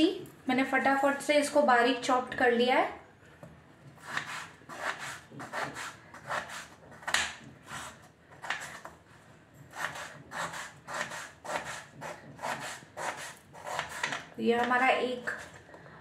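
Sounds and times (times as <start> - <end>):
knife cutting potato on board: 3.9 - 9.0, 9.6 - 15.6.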